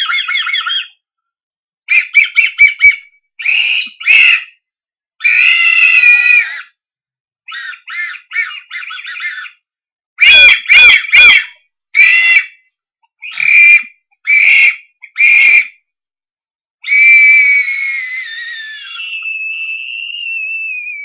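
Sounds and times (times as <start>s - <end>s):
person making bird-like calls: 0.0s - 1.0s, 18.3s - 21.0s.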